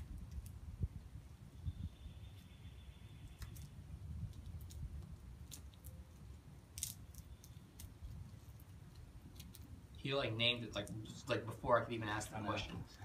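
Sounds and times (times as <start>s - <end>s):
tape peeling and crinkling: 0.0s - 0.7s, 3.2s - 10.0s.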